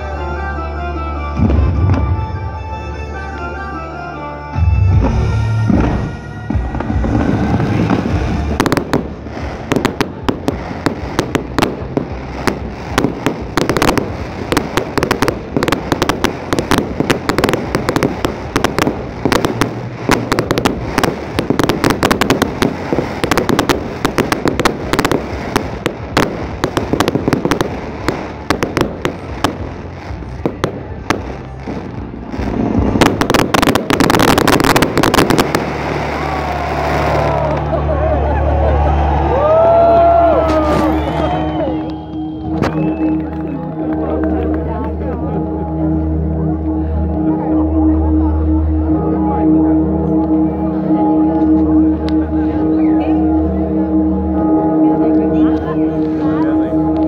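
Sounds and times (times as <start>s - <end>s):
fireworks bangs and crackling: 1.4s - 2.3s, 4.8s - 37.8s, 39.0s - 45.4s.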